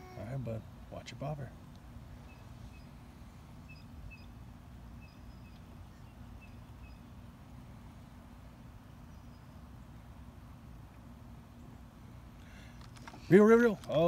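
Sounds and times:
bird chirping: 2.2s - 7.3s, 8.8s - 10.0s.

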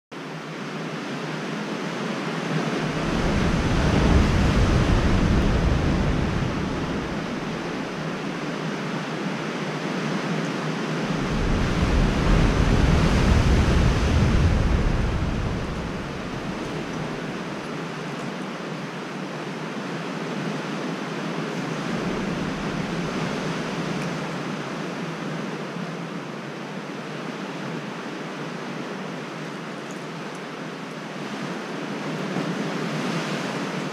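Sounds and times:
sea surf: 0.2s - 33.9s
wind buffeting microphone: 2.4s - 9.4s, 10.7s - 18.5s, 21.5s - 24.8s.

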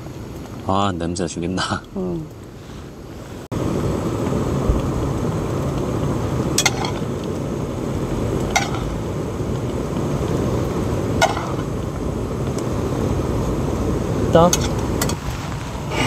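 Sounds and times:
stew boiling and bubbling: 0.0s - 16.0s.

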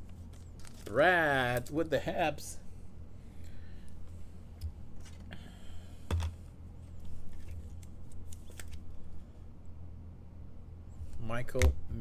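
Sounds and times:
steady low hum: 0.0s - 12.0s
cards and plastic holder handled: 0.1s - 1.0s, 6.1s - 8.9s.

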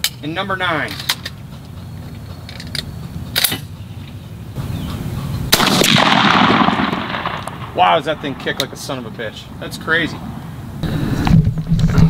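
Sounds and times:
shotgun shot: 5.5s - 8.6s.

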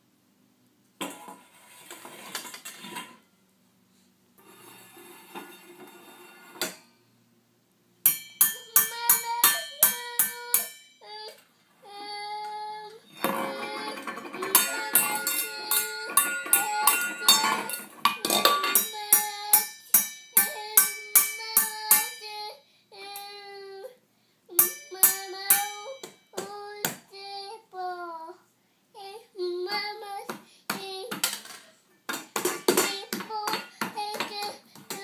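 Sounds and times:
whisk striking metal bowls: 8.1s - 10.9s, 13.2s - 22.2s
toddler singing: 8.6s - 31.4s, 32.6s - 35.0s.

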